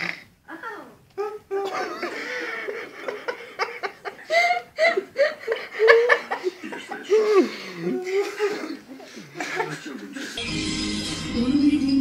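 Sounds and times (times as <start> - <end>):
person chuckling: 1.2 - 10.4.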